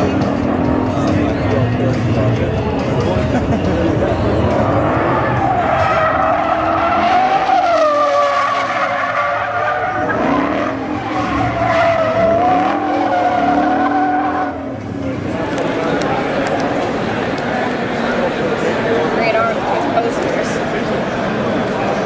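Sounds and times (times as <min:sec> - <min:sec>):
car engine revving: 0:00.0 - 0:21.5
tyres squealing: 0:04.6 - 0:14.8.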